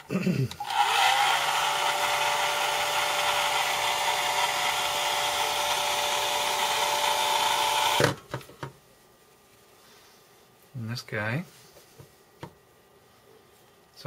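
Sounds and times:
heat gun fan whining: 0.5 - 8.5.

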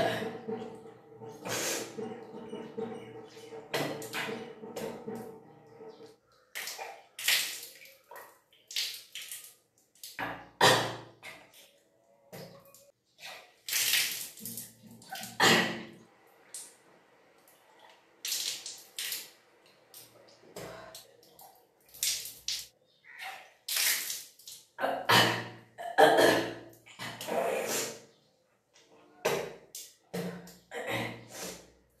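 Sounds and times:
person retching and gagging: 0.0 - 0.6, 10.1 - 11.5, 13.7 - 16.0, 23.7 - 28.1, 30.2 - 31.6.

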